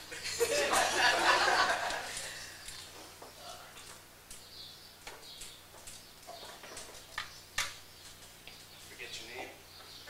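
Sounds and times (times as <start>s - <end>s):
people shuffling: 0.0s - 3.8s
folding chairs clicking and creaking: 0.0s - 10.0s.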